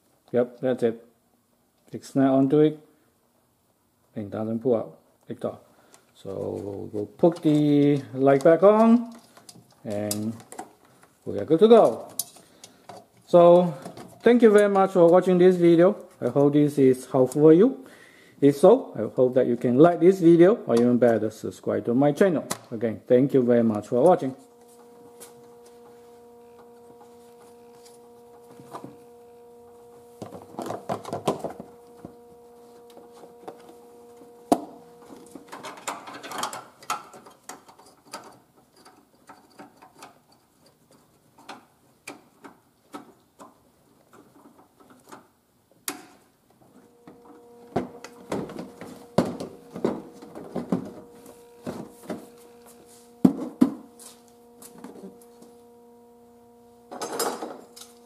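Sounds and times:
steady hum: 4.2s - 37.3s, 46.6s - 58.0s.

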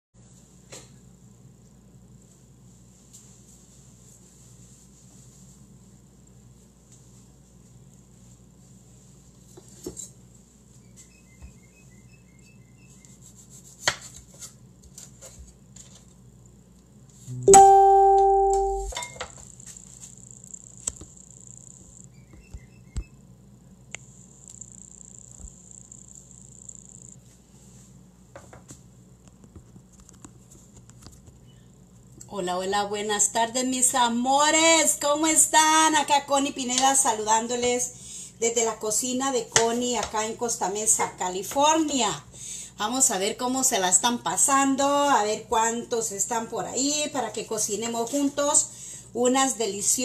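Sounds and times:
loud steady pitched tone: 17.3s - 19.0s.

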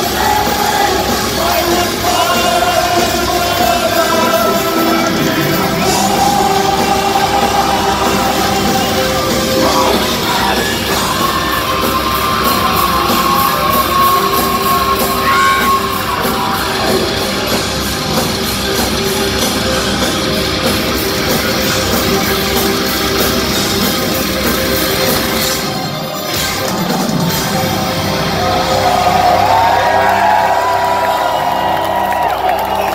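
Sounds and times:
distorted guitars: 0.0s - 32.9s
drums: 0.0s - 32.9s
person singing and shouting: 0.3s - 17.0s.

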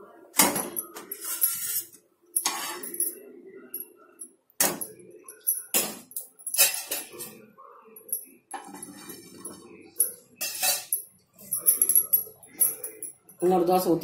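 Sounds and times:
steel spatula scraping pan: 10.4s - 10.9s.

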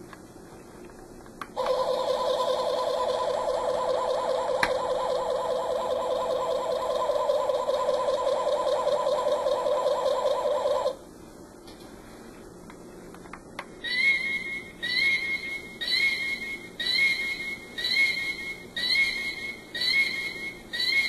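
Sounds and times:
warbling electronic tone: 1.6s - 11.0s.

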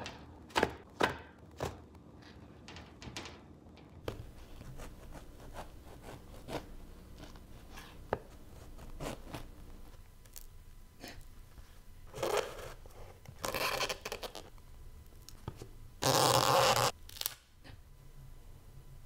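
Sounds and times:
bread crust crackling and tearing: 16.5s - 17.4s.

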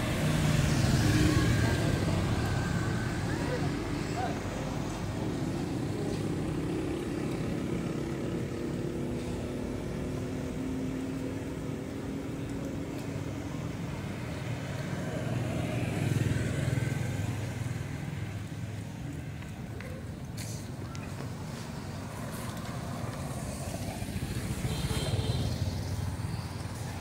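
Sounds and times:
road traffic engine hum: 0.0s - 27.0s.

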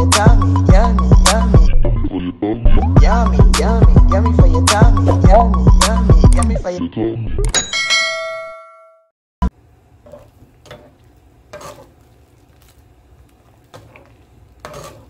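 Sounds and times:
pasta boiling in water: 9.5s - 15.0s
spoon knocking and scraping pot: 10.0s - 12.0s, 13.7s - 15.0s.

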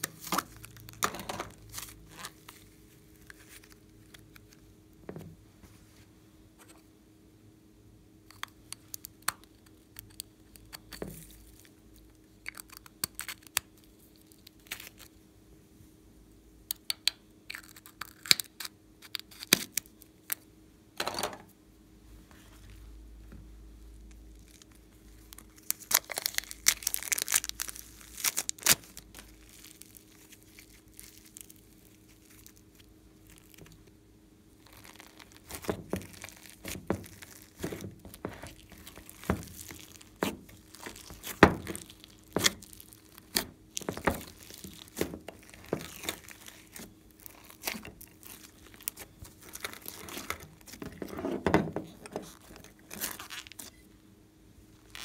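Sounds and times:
plastic bag crinkling: 24.4s - 33.8s, 34.6s - 53.8s
slime popping and squelching: 34.6s - 51.1s.

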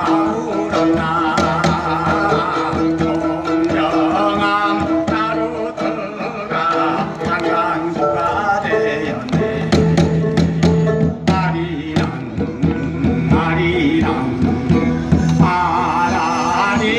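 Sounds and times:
man singing: 0.0s - 16.9s
plucked lute: 0.0s - 16.9s
steady drone: 12.1s - 16.9s.

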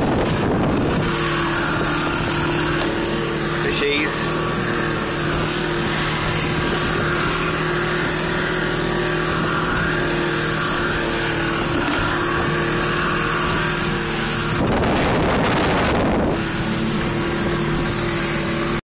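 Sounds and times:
outboard motor running: 0.0s - 18.8s
wind and water rushing: 0.0s - 18.8s.

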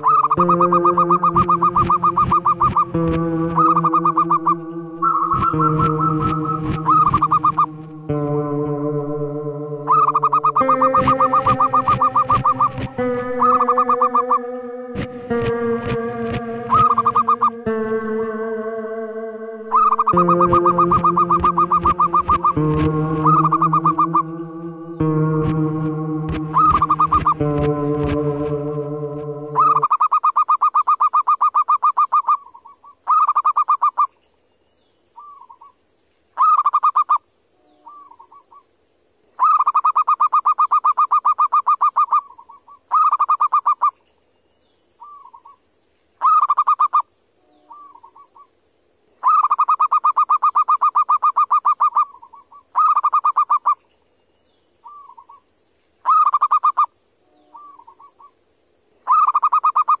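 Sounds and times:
dove cooing trills: 0.0s - 30.4s.

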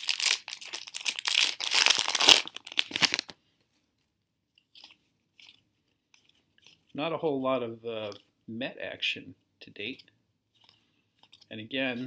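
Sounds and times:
wrapper being torn and crinkled: 0.0s - 3.4s.

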